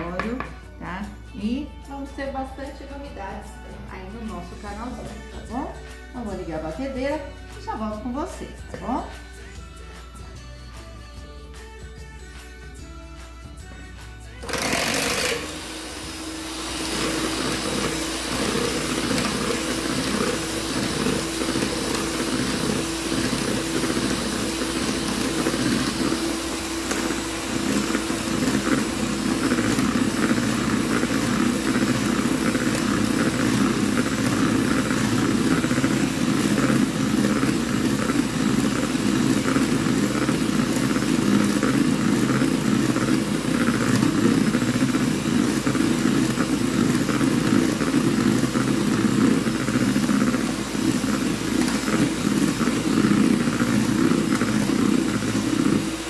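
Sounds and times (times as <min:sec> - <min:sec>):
electric mixer whipping cream: 0:14.3 - 0:56.0.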